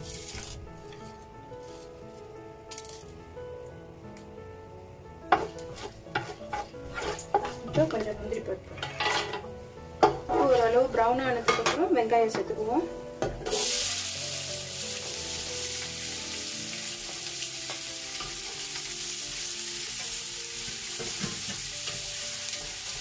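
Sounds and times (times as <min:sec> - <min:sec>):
onions sizzling in oil: 0:00.0 - 0:00.8, 0:05.3 - 0:11.5, 0:13.3 - 0:23.0
wooden spatula stirring: 0:05.3 - 0:09.1.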